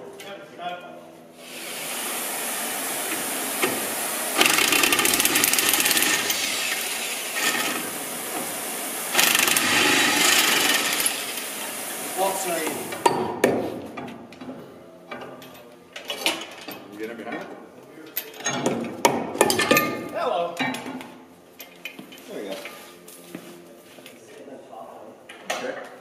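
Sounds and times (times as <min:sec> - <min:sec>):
impact wrench hammering on a bolt: 0:04.4 - 0:06.5, 0:09.1 - 0:11.2.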